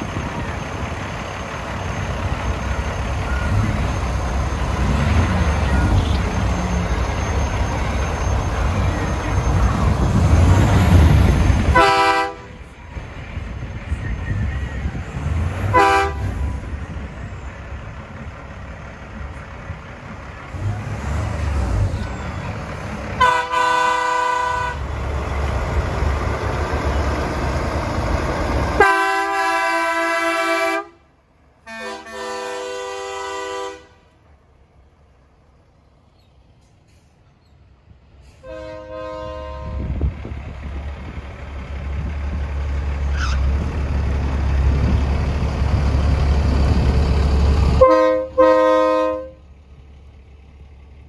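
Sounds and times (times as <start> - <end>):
diesel trucks rolling past: 0.0 - 51.0
air horn blasts: 11.7 - 12.6, 15.6 - 16.4, 23.2 - 24.8, 28.8 - 34.1, 38.4 - 39.9, 47.8 - 49.4.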